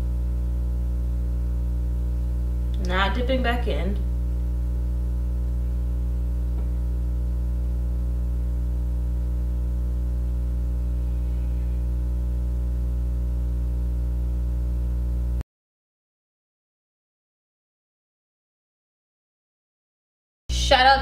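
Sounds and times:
electrical mains hum: 0.0s - 15.4s, 20.5s - 21.0s.

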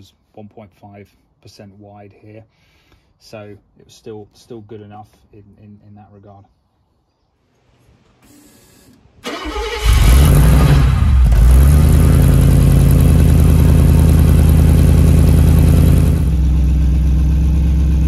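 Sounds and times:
car engine starting and idling: 8.0s - 18.0s.

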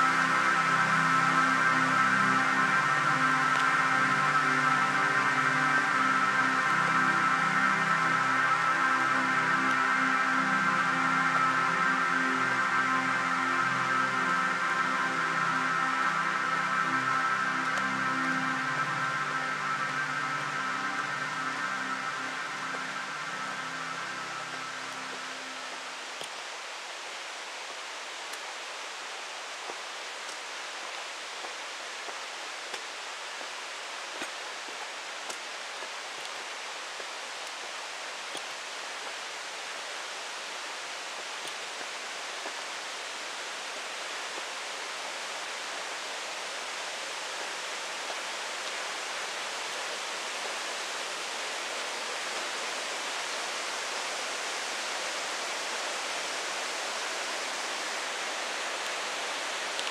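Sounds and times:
flowing water rushing: 0.0s - 59.9s
faint ticks: 26.2s - 26.5s, 31.4s - 37.6s, 38.3s - 39.2s, 41.2s - 42.6s.

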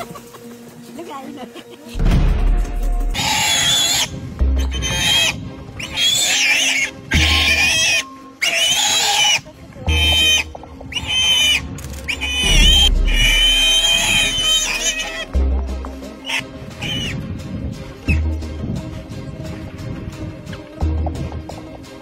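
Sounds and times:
background music: 0.0s - 22.0s
warthog squealing: 3.2s - 15.3s.

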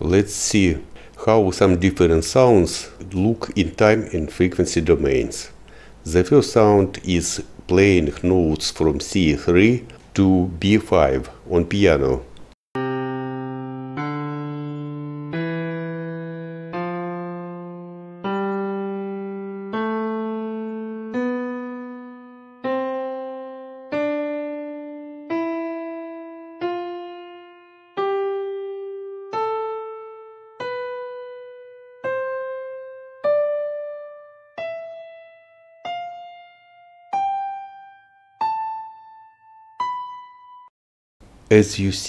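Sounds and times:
piano ascending single notes: 12.8s - 40.7s.

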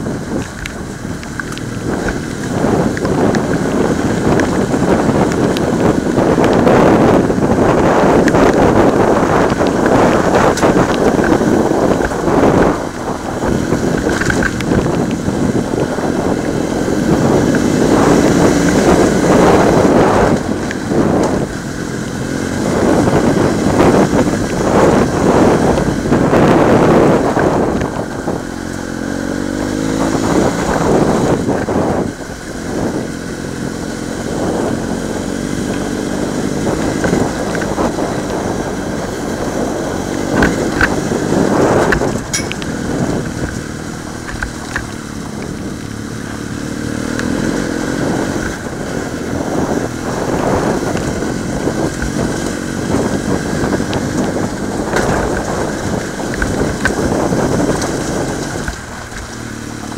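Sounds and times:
tyres crunching over stones: 0.0s - 6.6s, 8.2s - 16.8s, 53.9s - 59.9s
motorcycle engine revving: 0.0s - 59.9s
stones knocking: 0.4s - 5.7s.

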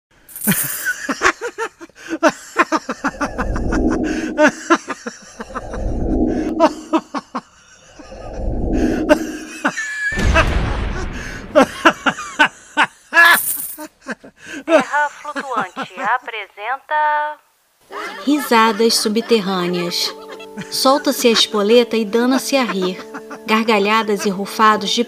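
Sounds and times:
person laughing: 0.4s - 16.1s, 22.3s - 24.4s
rough breathy noise: 3.0s - 7.0s, 7.8s - 9.8s.

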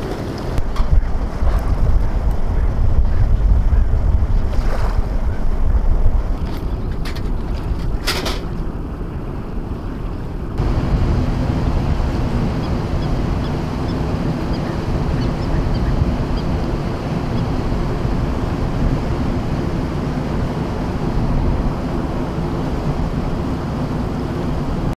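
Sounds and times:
calm sea washing on shore: 0.0s - 25.0s
wind buffeting microphone: 0.0s - 25.0s.

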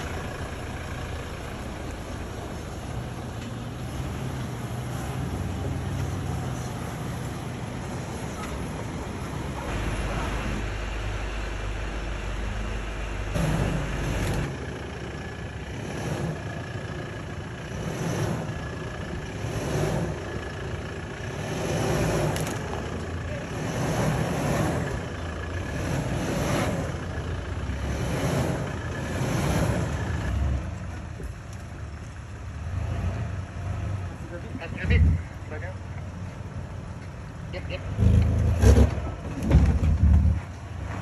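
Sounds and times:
engines running low: 0.0s - 41.0s
rushing noise: 6.8s - 16.9s.

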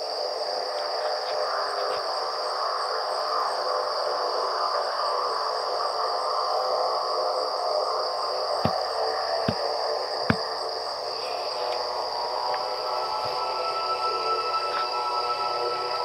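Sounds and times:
cricket chirping: 0.0s - 16.0s
insects chirring in grass: 0.0s - 16.0s.

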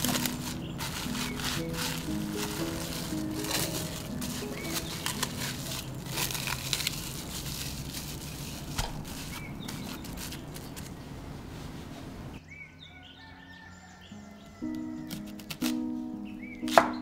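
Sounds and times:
cling film crinkling: 0.0s - 11.2s.

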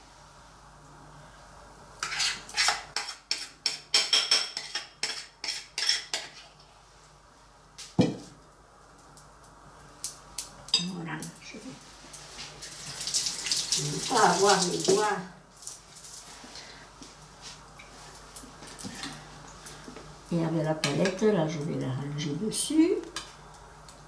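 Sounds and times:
spoon scraping glass bowl: 2.0s - 6.5s.

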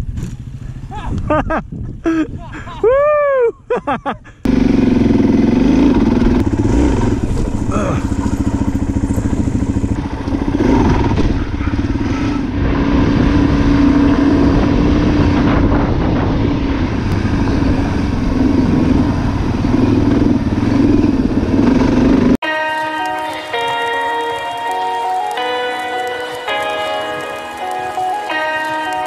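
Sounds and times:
motorcycle engine revving: 4.4s - 22.4s.

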